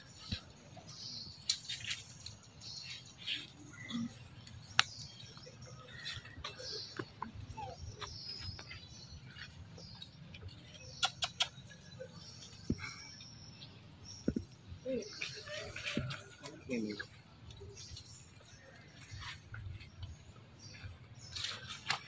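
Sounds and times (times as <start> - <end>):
animal chirps and squeaks: 5.2 - 13.1, 14.2 - 17.2.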